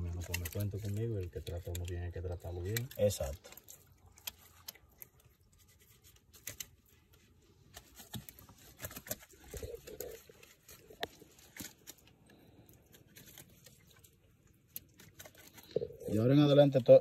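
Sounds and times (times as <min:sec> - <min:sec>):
net rustling and clicking: 0:00.0 - 0:15.9.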